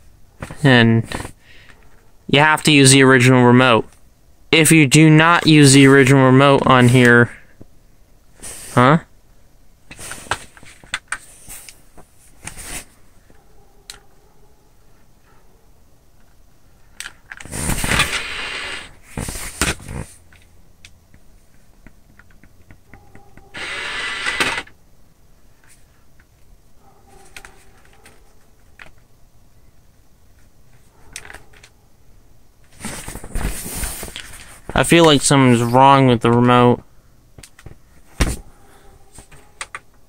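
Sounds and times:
rustling handling noise: 0:09.8 - 0:18.2, 0:18.9 - 0:20.5, 0:25.4 - 0:29.1, 0:32.6 - 0:36.5, 0:37.4 - 0:40.0.

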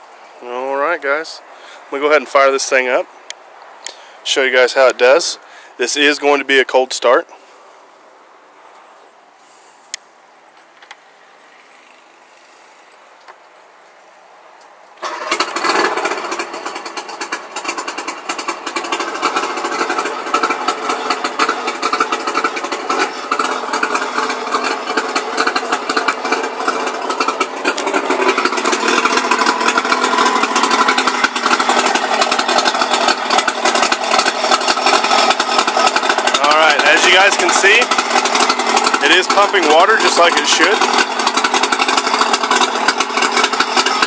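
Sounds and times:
outboard motor starting and idling: 0:15.0 - 0:44.0.

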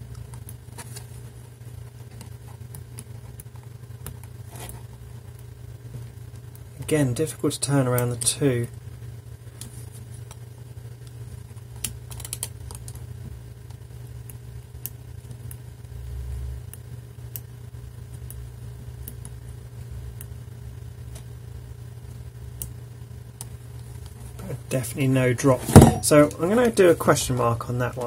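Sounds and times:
dull thump: 0:25.6 - 0:26.1.

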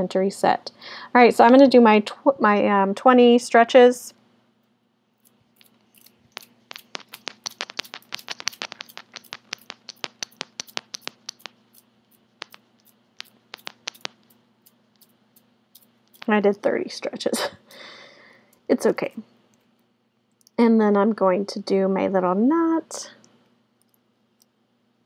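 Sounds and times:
beads clicking together: 0:05.2 - 0:16.7.

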